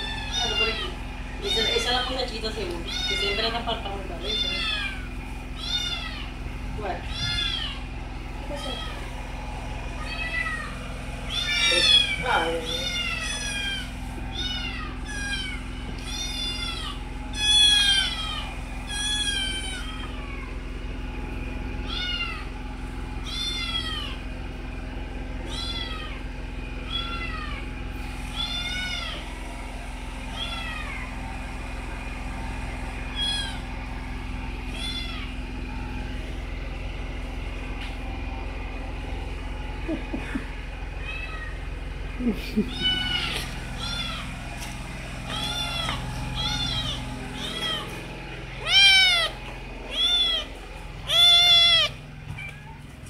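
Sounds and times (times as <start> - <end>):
kitten meowing: 0.0 - 2.1, 2.8 - 3.5, 4.2 - 7.8, 8.5 - 9.1, 10.0 - 20.5, 21.9 - 22.5, 23.2 - 24.2, 25.4 - 26.2, 26.8 - 27.6, 28.3 - 29.2, 30.3 - 31.1, 33.1 - 33.6, 34.7 - 35.4, 42.7 - 44.3, 45.3 - 48.0, 48.6 - 52.8
steady low hum: 0.0 - 53.0.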